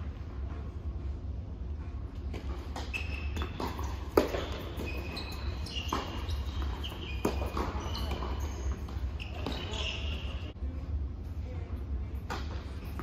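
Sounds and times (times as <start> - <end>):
steady low hum: 0.0 - 13.0
rackets striking tennis ball: 2.1 - 10.6
ball bouncing: 2.2 - 10.4
sneakers squeaking on court: 2.2 - 10.6.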